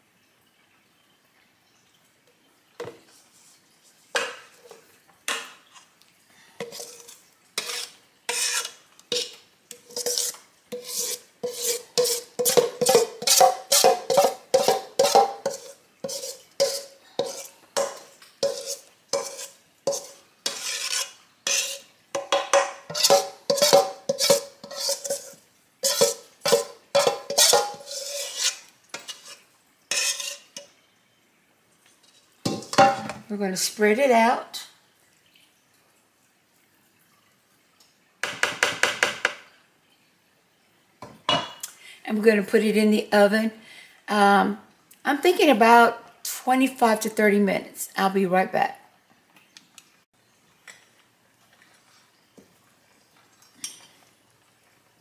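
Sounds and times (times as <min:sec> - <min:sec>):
metal spoon scraping bowl: 0:06.6 - 0:30.7.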